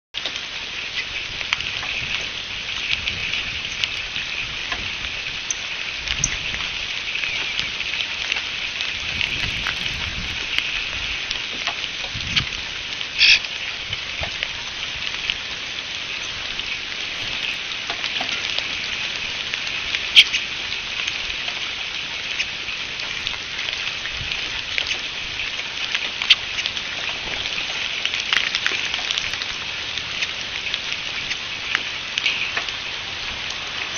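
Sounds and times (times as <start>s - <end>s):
rain pattering: 0.2s - 33.9s
bird calls: 2.7s - 4.7s, 17.0s - 18.3s.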